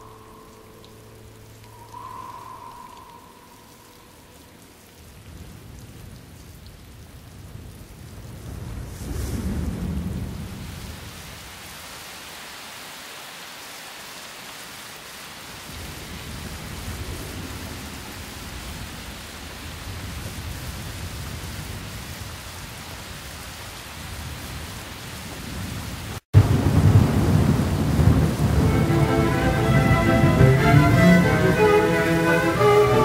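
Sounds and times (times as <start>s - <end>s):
low thunder rumbling: 0.0s - 6.2s, 26.4s - 33.0s
steady rain: 0.0s - 33.0s.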